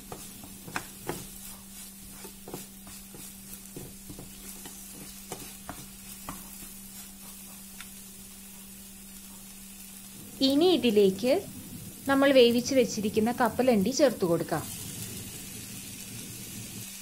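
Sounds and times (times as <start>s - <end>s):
wooden spoon scraping a pan: 0.0s - 10.5s
steady low hum: 0.0s - 16.2s
gentle sizzle: 0.0s - 17.0s
spoon tapping on pan: 0.1s - 1.3s, 2.5s - 6.6s.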